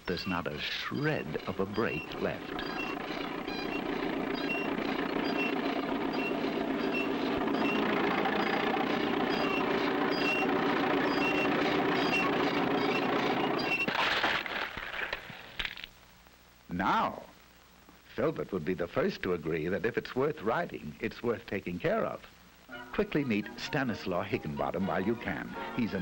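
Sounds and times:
road roller engine running: 0:01.2 - 0:14.0.

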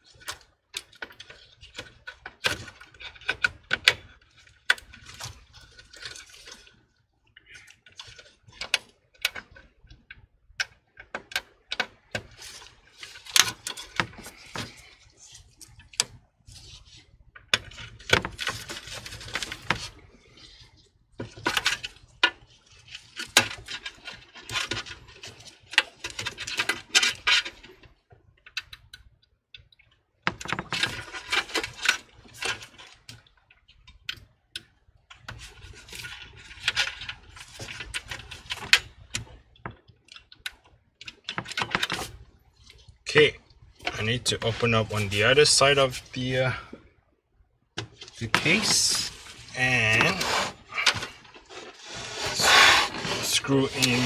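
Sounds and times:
clicks and taps of metal and plastic: 0:07.6 - 0:12.3, 0:25.7 - 0:31.7, 0:36.7 - 0:42.8
scraping and rustling: 0:12.2 - 0:27.6, 0:47.9 - 0:54.0.

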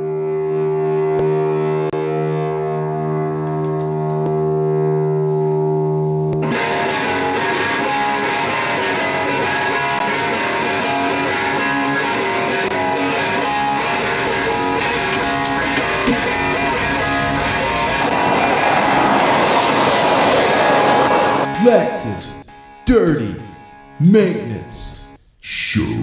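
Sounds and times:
guitar-led band music: 0:06.4 - 0:18.9.

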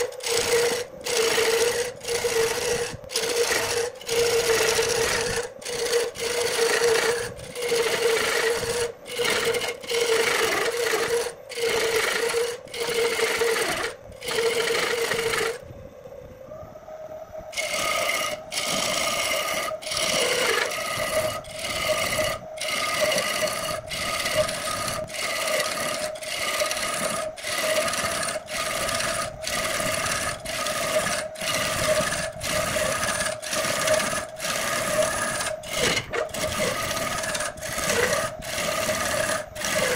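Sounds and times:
tool scraping wood on lathe: 0:00.0 - 0:15.6, 0:17.6 - 0:39.9
lathe hum: 0:00.0 - 0:15.7, 0:17.0 - 0:39.9.

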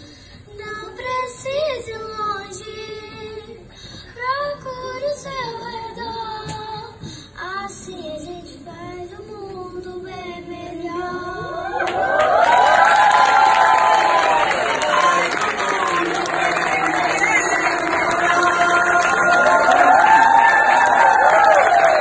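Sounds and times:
audience cheering and clapping: 0:11.6 - 0:22.0
female choir singing: 0:17.4 - 0:20.0.

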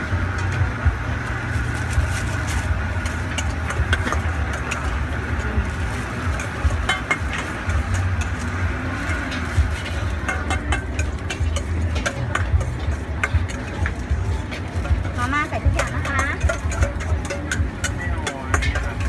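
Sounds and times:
steady low rumble: 0:00.0 - 0:19.0
spoon clinking against steel bowl: 0:06.2 - 0:19.0.

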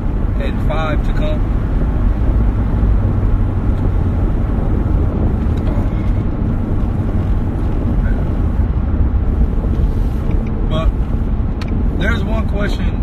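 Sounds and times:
car road and engine rumble: 0:00.0 - 0:13.0.

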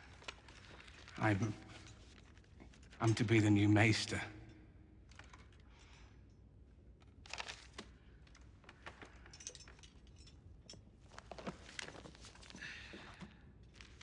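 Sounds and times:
book pages rustling: 0:00.0 - 0:03.0, 0:07.2 - 0:09.1, 0:11.0 - 0:12.6, 0:13.2 - 0:14.0.

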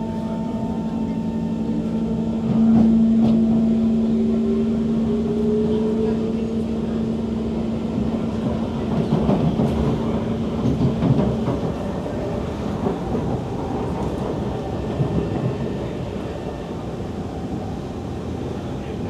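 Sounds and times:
low hum: 0:00.0 - 0:08.9
wheels rumbling on rails: 0:00.0 - 0:19.0.

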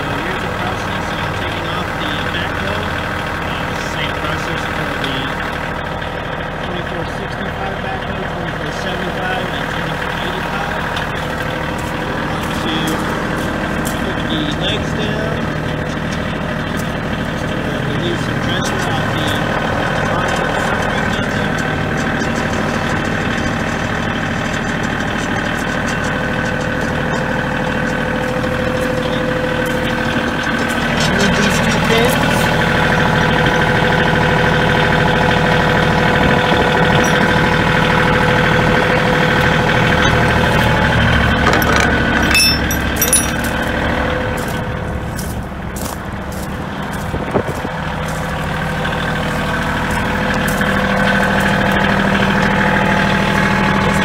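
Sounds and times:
tractor diesel engine running: 0:00.0 - 0:54.0
sharp metal clicks: 0:41.4 - 0:43.6.

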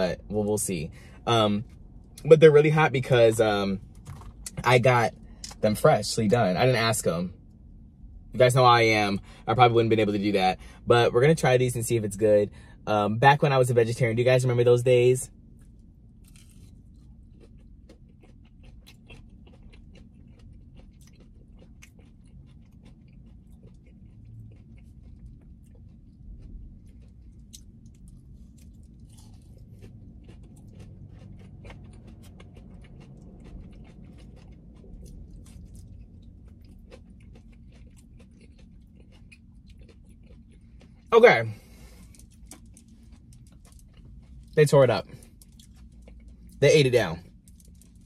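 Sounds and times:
crunchy chewing: 0:15.6 - 0:48.0.

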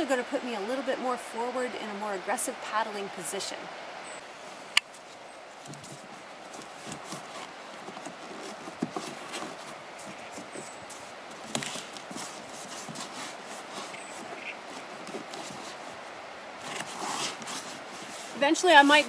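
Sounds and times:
background hiss: 0:00.0 - 0:19.0
fabric and foam rustling: 0:04.4 - 0:19.0.

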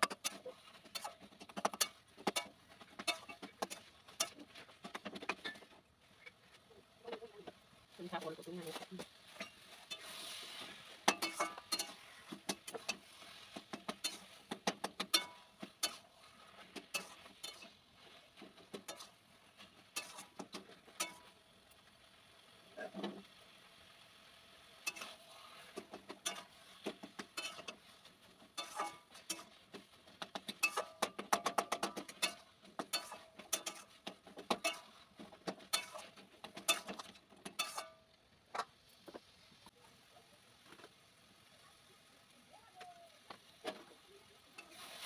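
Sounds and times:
metal spatula scraping a pan: 0:00.0 - 0:06.6, 0:08.0 - 0:21.8, 0:24.6 - 0:38.7, 0:43.6 - 0:45.0.

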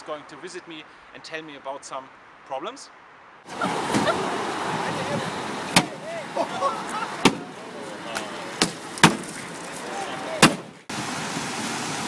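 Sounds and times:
street noise: 0:00.0 - 0:12.0
onlookers' voices: 0:03.5 - 0:10.9
sledgehammer striking car: 0:05.7 - 0:06.0, 0:07.2 - 0:07.5, 0:08.6 - 0:09.4, 0:10.4 - 0:10.8.

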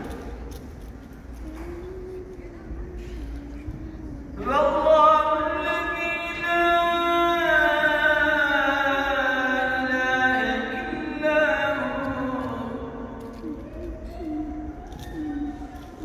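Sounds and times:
man chanting melodic recitation: 0:04.4 - 0:16.0.

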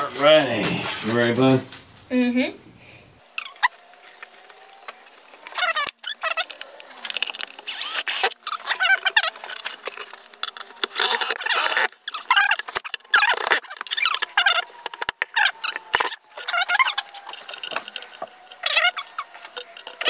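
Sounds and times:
cordless drill driving screws: 0:05.4 - 0:20.0.

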